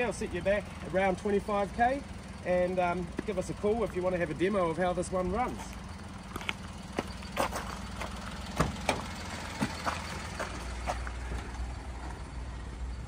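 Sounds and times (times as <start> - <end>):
truck engine idling: 0.0 - 13.0
footsteps on gravel: 5.5 - 8.5, 9.4 - 11.6.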